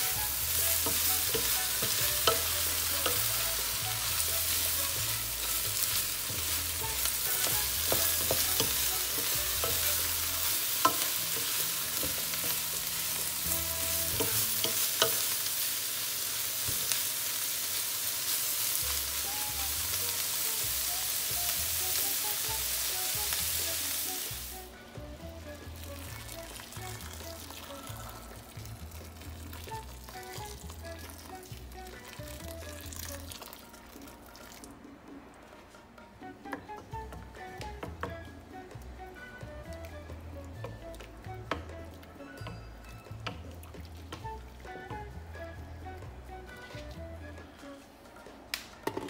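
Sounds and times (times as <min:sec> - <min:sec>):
meat sizzling in a pan: 0:00.0 - 0:24.7.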